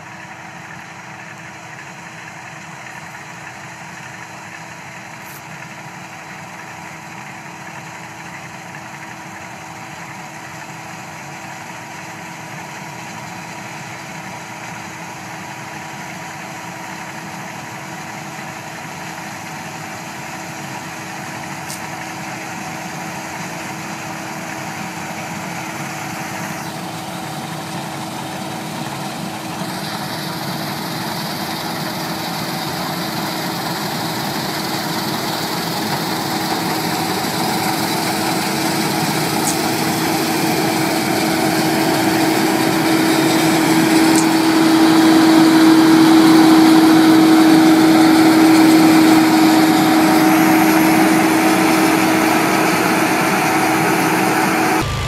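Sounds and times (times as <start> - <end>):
combine harvester humming: 0.0 - 55.0.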